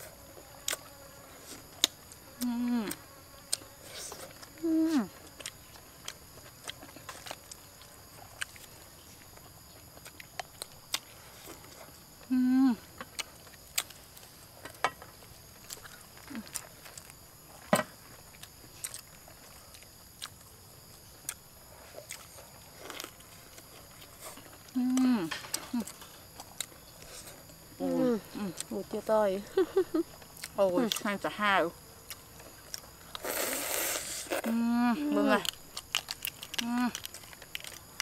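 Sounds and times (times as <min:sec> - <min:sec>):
wet chewing mouth sounds: 0:18.3 - 0:20.5, 0:21.2 - 0:27.6.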